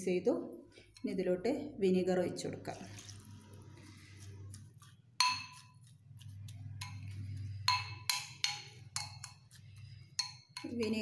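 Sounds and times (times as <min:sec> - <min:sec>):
spoon clinking against bowl: 0:05.2 - 0:05.9, 0:06.8 - 0:11.0.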